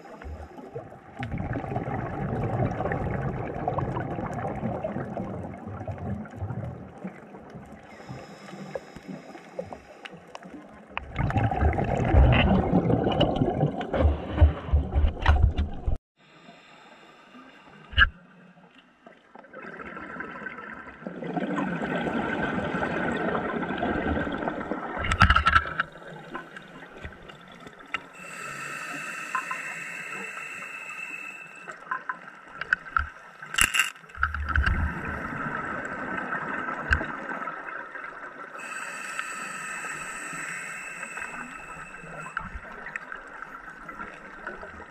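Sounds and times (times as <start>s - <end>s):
bubbling underwater exhalations: 11.0s - 15.0s
hiss of air through regulator: 28.1s - 31.8s, 38.6s - 42.5s.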